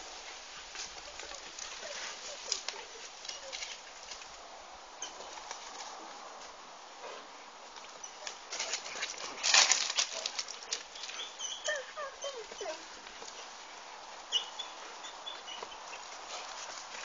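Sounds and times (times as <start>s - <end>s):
dog yelping: 1.1s - 3.8s, 11.2s - 12.9s.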